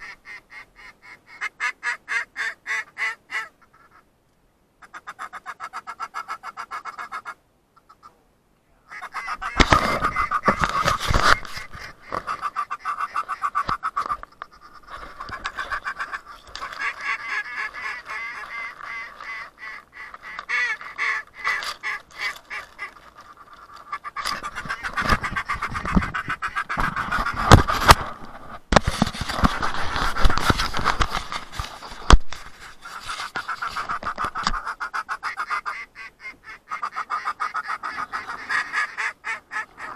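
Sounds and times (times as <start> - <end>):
waterfowl quacking and honking: 0.0 - 4.1, 4.8 - 8.2, 8.9 - 28.0, 32.0 - 39.9.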